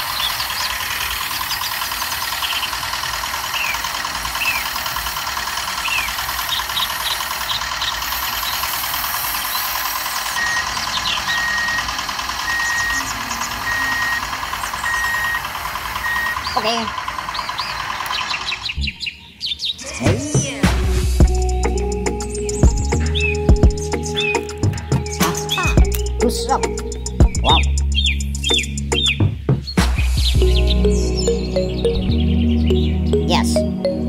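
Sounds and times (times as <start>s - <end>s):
model tractor engine chugging: 0.0s - 18.8s
short beeps: 10.4s - 15.4s, 16.0s - 16.4s.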